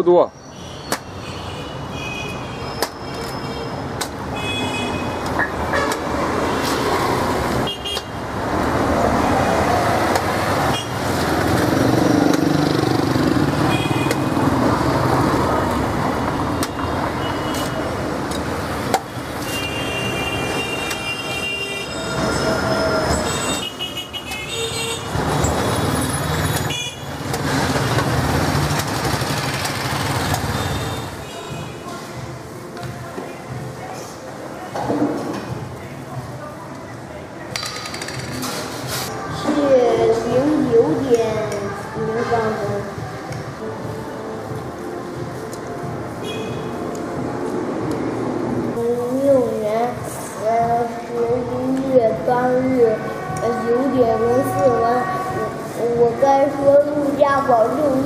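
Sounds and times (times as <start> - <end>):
street traffic: 0.0 - 58.0
vehicle horns tooting: 0.5 - 6.6, 7.6 - 8.2, 10.6 - 11.0, 13.6 - 14.3, 16.6 - 18.0, 19.4 - 25.2, 26.5 - 27.2, 30.4 - 31.8, 46.2 - 46.8, 52.9 - 55.8.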